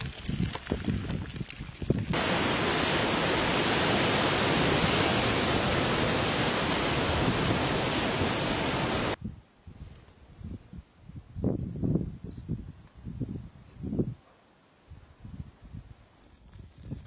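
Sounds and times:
rushing noise on microphone: 0.0s - 9.2s.

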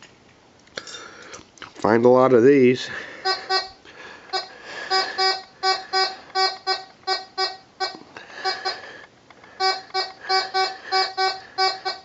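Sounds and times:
metal detector beeps: 3.3s - 8.6s, 9.6s - 12.0s.

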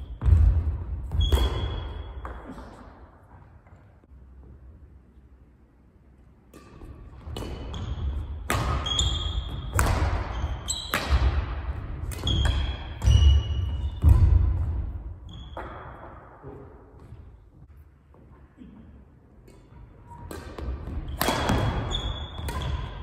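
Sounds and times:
rackets striking shuttlecock: 1.1s - 2.8s, 6.4s - 14.8s, 19.4s - 23.0s.

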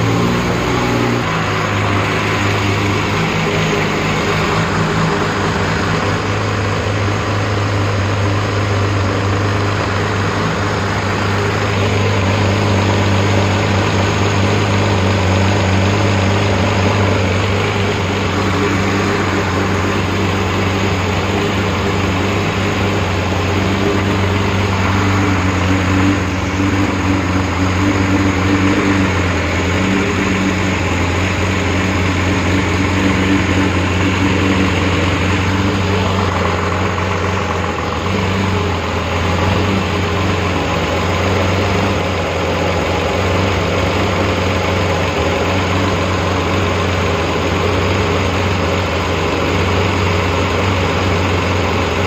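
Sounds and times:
car engine idling: 0.0s - 52.0s
cooling fan turning: 0.0s - 52.0s.

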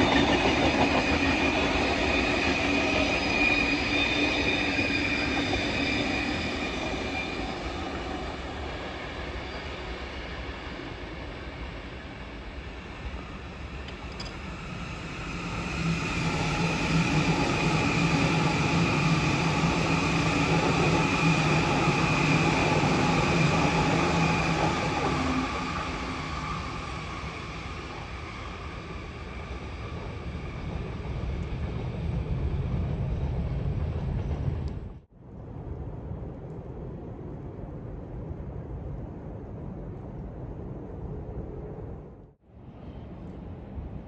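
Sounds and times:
electric train passing: 0.0s - 35.1s
second train approaching: 0.0s - 35.1s.

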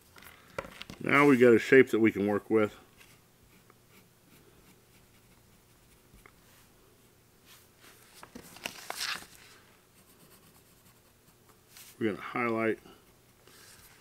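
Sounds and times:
pencil scratching on paper: 3.5s - 6.2s, 10.0s - 12.0s.

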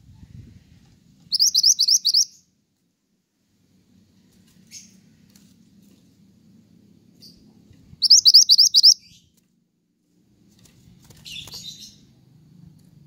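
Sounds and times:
songbird chirping: 1.2s - 2.6s, 7.2s - 9.4s.

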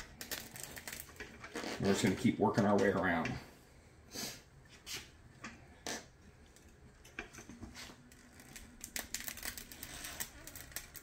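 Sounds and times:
tire irons clicking on wheel rim: 8.1s - 11.0s.

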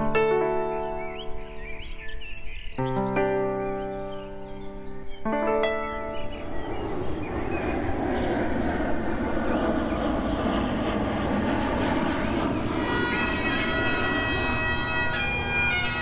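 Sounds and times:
jet airliner flying overhead: 0.0s - 16.0s
bagpipes playing: 12.8s - 16.0s.

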